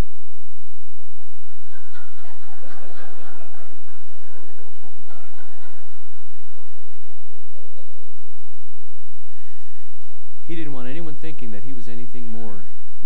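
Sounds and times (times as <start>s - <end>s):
congregation laughing: 1.6s - 9.1s.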